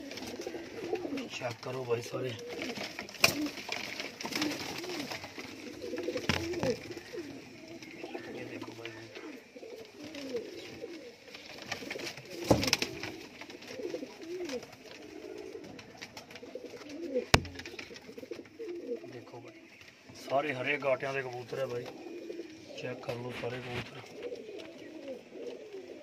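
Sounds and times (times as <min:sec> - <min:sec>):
pigeons cooing: 0:00.0 - 0:26.0
sharp knocks: 0:17.3 - 0:17.9.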